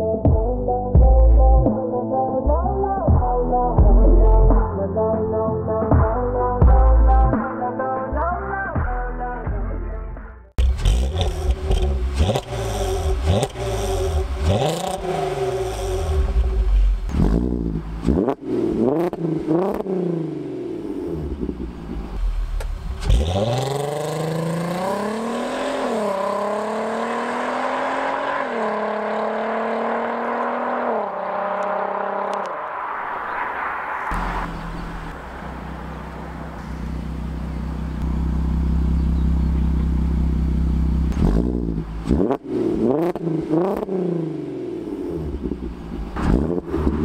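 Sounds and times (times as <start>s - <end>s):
car engine revving and accelerating: 10.6s - 47.0s.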